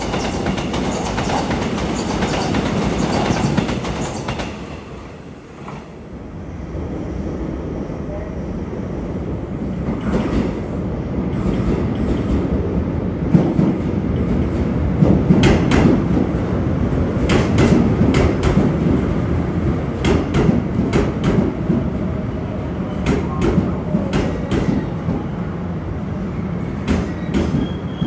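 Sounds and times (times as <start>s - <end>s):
train rolling rumble: 0.0s - 28.0s.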